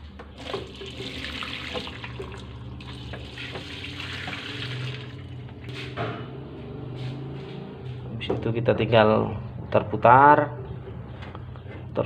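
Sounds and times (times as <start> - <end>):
liquid pouring into drum: 0.4 - 5.5.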